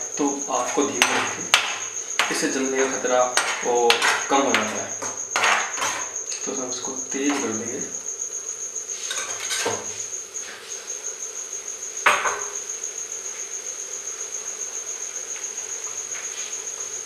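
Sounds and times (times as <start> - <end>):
metal utensil clattering on pan: 3.4 - 6.1, 9.1 - 9.9.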